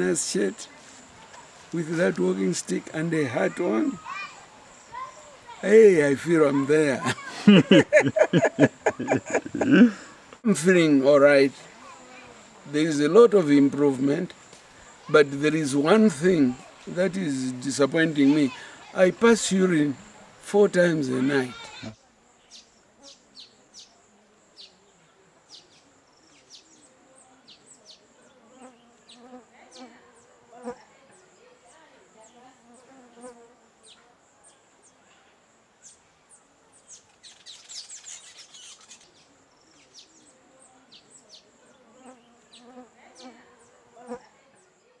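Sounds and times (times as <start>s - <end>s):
birds chirping: 0.0s - 24.0s, 35.8s - 43.8s
insects buzzing: 0.0s - 45.0s.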